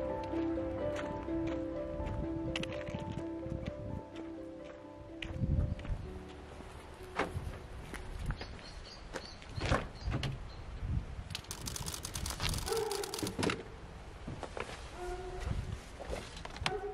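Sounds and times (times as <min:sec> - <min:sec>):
footsteps: 0:00.2 - 0:09.9.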